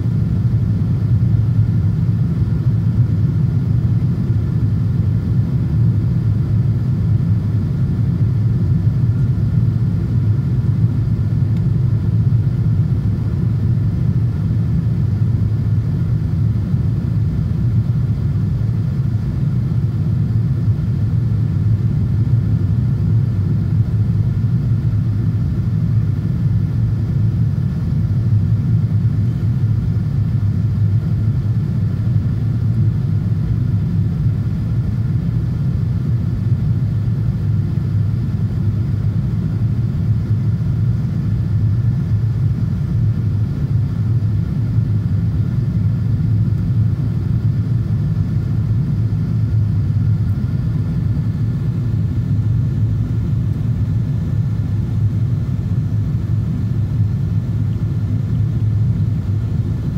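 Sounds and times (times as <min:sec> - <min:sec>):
jet engine rumble: 0:00.0 - 0:59.9.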